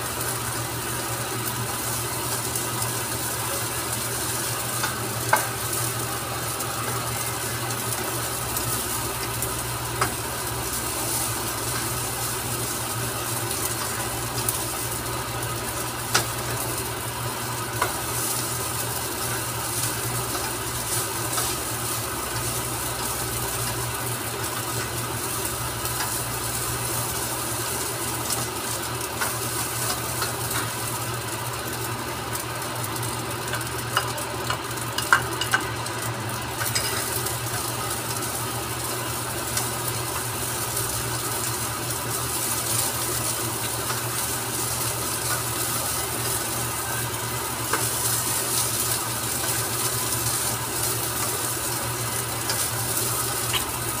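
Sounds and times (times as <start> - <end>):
steady low hum: 0.0 - 30.3
rice sizzling in a pan: 0.0 - 54.0
spatula tapping a pan: 33.5 - 35.7.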